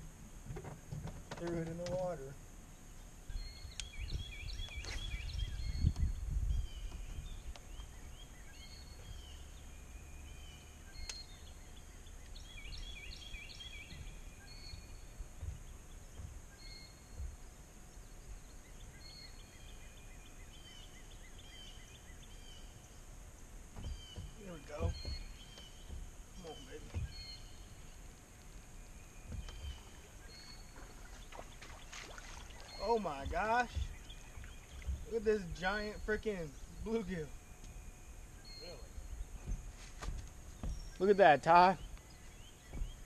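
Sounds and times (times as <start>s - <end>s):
low rumbles: 0.0s - 43.0s
songbirds chirping: 0.0s - 43.0s
steady outdoor hiss: 0.0s - 43.0s
knocks: 14.7s - 16.4s, 23.7s - 27.4s.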